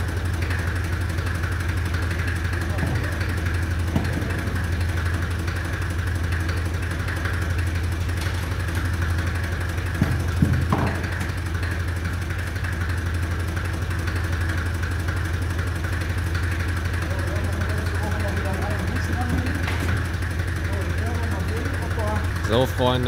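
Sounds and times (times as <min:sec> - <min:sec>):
tractor engine idling: 0:00.0 - 0:23.0
short knocks: 0:10.0 - 0:11.4.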